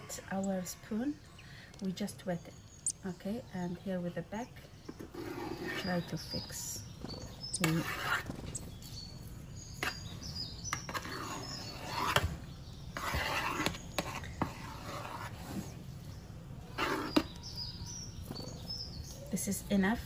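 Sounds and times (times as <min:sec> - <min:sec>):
spoon scraping dough in pan: 0:16.8 - 0:17.4.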